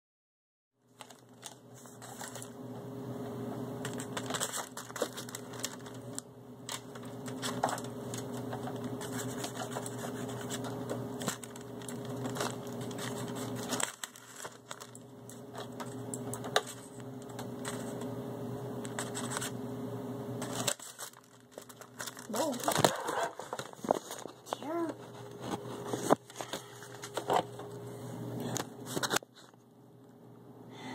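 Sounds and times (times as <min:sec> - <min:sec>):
steady low hum: 0:00.8 - 0:30.9
paper envelope rustling: 0:00.9 - 0:02.6, 0:03.8 - 0:18.1, 0:18.9 - 0:19.6, 0:20.4 - 0:27.6, 0:28.8 - 0:29.6.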